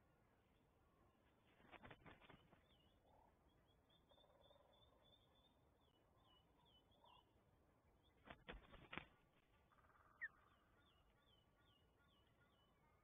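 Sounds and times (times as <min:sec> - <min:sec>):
bird wingbeats: 0:01.5 - 0:02.7, 0:08.2 - 0:09.6.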